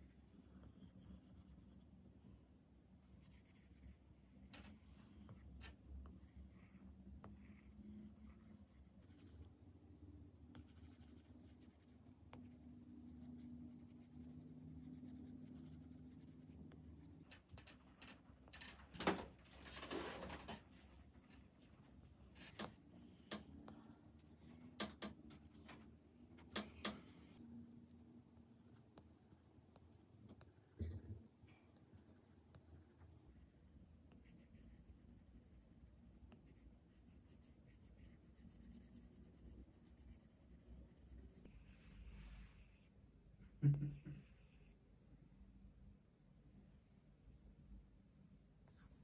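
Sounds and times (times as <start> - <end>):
stylus scratching on glass screen: 10.5 - 19.0, 33.2 - 42.9, 43.9 - 44.8.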